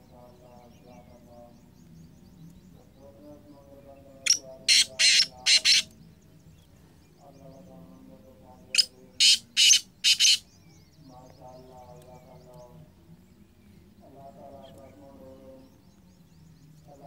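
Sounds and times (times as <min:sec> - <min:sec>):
bird calling harsh rasping notes: 0:04.2 - 0:06.0, 0:08.6 - 0:10.6.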